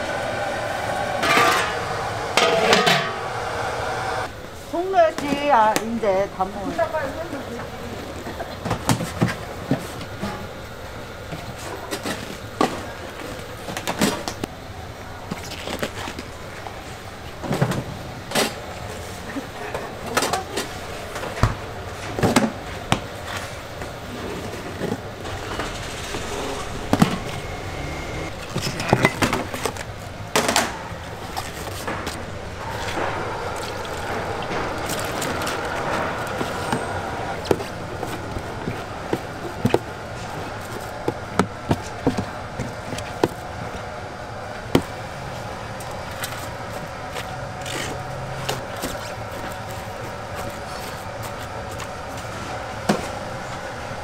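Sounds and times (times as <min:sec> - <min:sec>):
steady background hum: 0:00.0 - 0:54.0
bowls and utensils clinking: 0:01.2 - 0:03.2.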